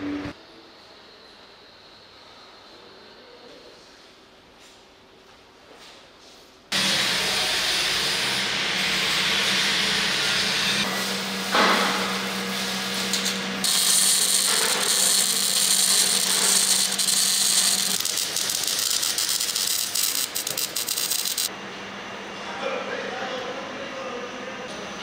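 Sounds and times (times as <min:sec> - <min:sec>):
machine shop hum: 0:06.7 - 0:25.0
welding crackling hiss: 0:11.0 - 0:21.5.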